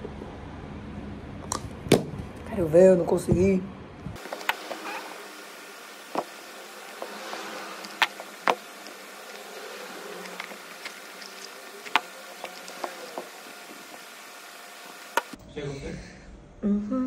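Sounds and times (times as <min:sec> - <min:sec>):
faint buzzing hum: 0:03.9 - 0:15.4.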